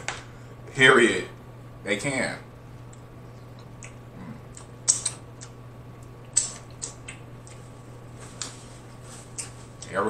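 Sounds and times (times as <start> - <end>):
faint low hum: 0.0 - 10.0
wet eating mouth sounds: 3.4 - 7.8.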